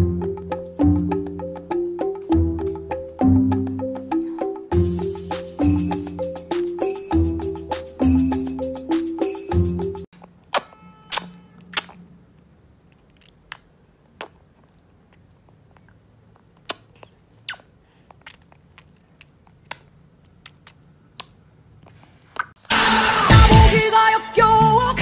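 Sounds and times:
baby mouth smacks and clicks: 10.1s - 12.0s, 12.6s - 22.6s
faint room hum: 10.1s - 22.6s.

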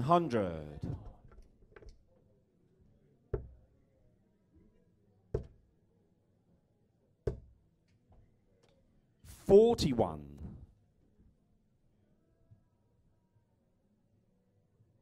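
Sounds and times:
darts thudding into dartboard: 3.4s - 3.6s, 5.4s - 5.6s, 7.3s - 7.5s.

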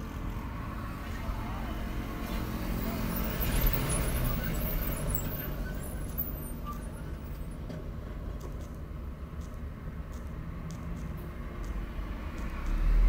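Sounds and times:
car engine rumble and road noise: 0.0s - 13.0s
faint clicks: 8.3s - 12.8s.

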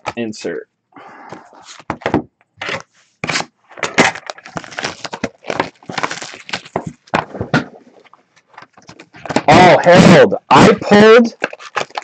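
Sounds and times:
plastic shrink wrap crinkling and tearing: 2.6s - 7.1s, 11.3s - 12.0s.

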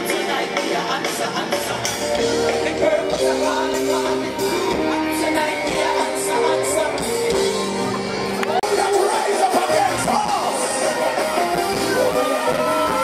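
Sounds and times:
person singing: 0.0s - 7.9s
live band music: 0.0s - 13.0s.

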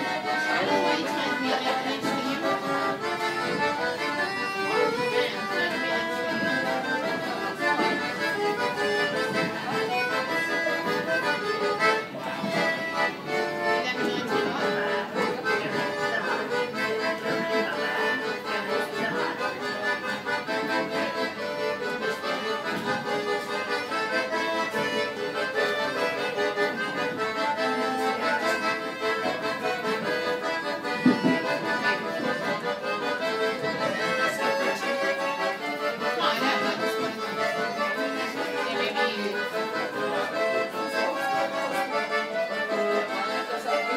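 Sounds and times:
accordion playing a tune: 0.0s - 43.9s.

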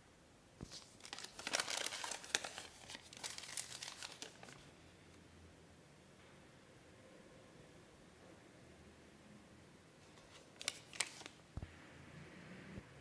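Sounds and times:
paper crinkling and rustling: 0.6s - 4.7s, 10.2s - 11.4s.

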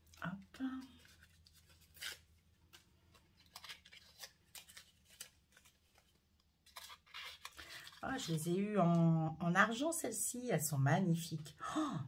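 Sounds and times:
paper rustling and crackling: 0.0s - 8.5s.

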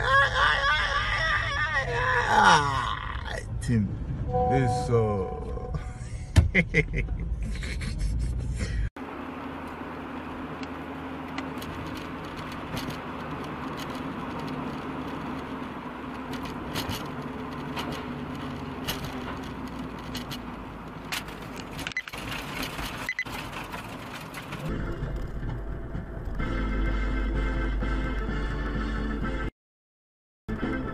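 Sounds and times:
car road noise hum: 0.0s - 28.6s
light rattles and clicks: 10.6s - 25.6s.

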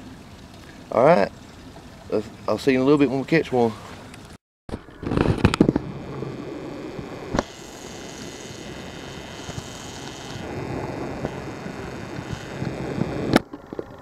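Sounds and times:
low outdoor rumble: 0.0s - 14.0s
faint high whine: 4.8s - 13.4s.

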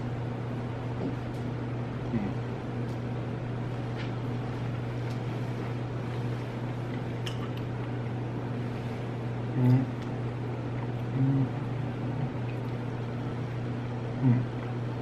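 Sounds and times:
low mechanical hum: 0.0s - 15.0s
short low voice sound: 2.0s - 2.5s, 9.5s - 10.1s, 11.0s - 12.4s, 14.1s - 14.6s.

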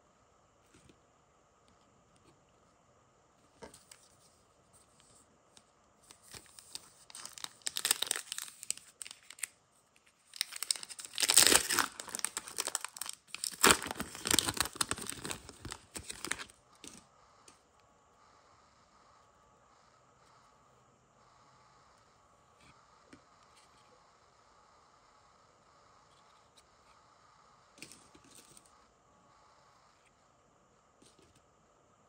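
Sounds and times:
foil wrapper crinkling and ripping: 6.1s - 9.6s, 10.2s - 16.5s.

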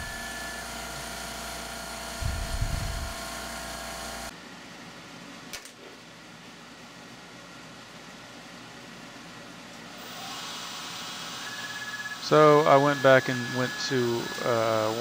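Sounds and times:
milling machine spindle whine: 0.0s - 4.3s, 10.0s - 15.0s.

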